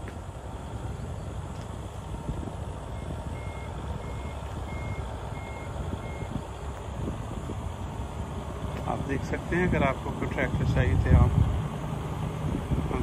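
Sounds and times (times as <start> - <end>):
steady low rumble: 0.0 - 13.0
reversing alarm beeping: 2.9 - 6.4.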